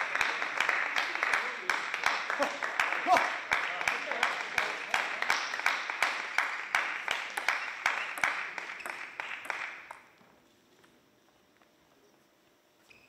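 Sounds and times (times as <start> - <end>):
hand clapping steady beat: 0.0 - 10.1.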